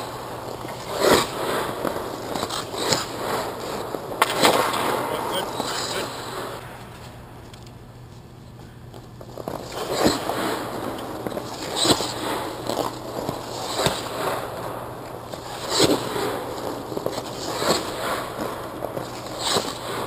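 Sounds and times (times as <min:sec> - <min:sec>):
skate blades scraping ice: 0:00.0 - 0:07.2, 0:08.9 - 0:20.0.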